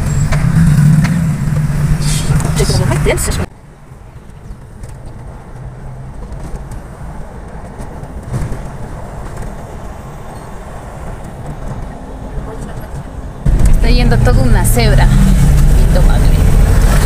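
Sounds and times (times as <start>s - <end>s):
car engine running: 0.0s - 3.5s, 12.4s - 17.0s
tyres on road: 0.0s - 17.0s.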